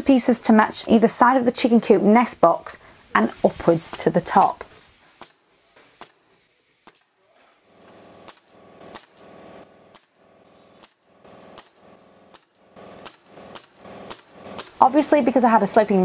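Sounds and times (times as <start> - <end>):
nail gun firing into wood: 5.2 - 7.2, 7.9 - 9.3, 9.9 - 14.9.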